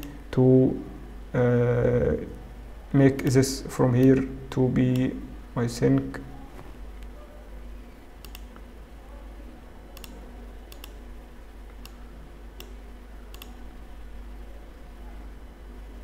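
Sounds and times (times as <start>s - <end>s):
faint low hum: 0.0s - 16.0s
computer mouse clicks: 8.2s - 8.7s, 10.0s - 11.0s, 12.6s - 13.6s.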